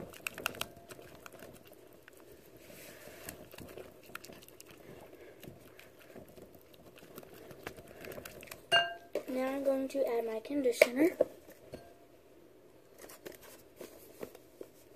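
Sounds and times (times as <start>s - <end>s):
spatula stirring wet mixture: 0.0s - 9.5s.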